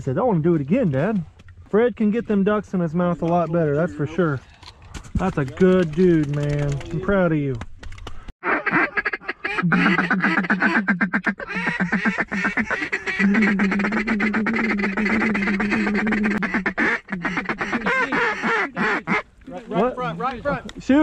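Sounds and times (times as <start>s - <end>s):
duck calls quacking: 8.4s - 19.3s.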